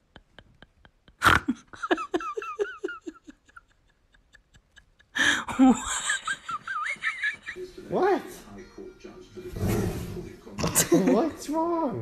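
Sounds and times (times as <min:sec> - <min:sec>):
person giggling and laughing: 0:00.0 - 0:07.7.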